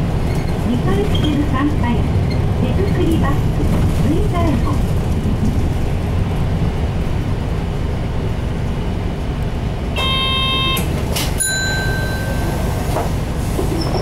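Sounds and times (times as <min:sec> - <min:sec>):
bus engine rumble: 0:00.0 - 0:14.0
high ringing tone: 0:10.0 - 0:10.8, 0:11.4 - 0:12.7.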